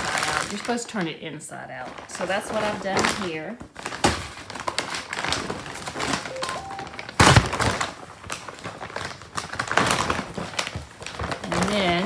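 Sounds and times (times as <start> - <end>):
plastic sack rustling and crinkling: 1.5 - 6.3, 8.0 - 12.0.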